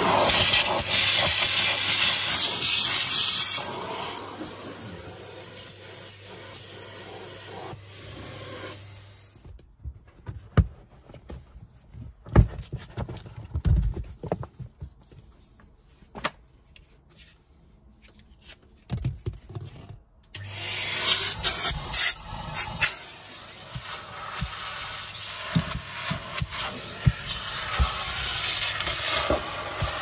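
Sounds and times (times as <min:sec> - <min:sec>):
vacuum cleaner running: 0:00.0 - 0:09.5, 0:20.4 - 0:30.0.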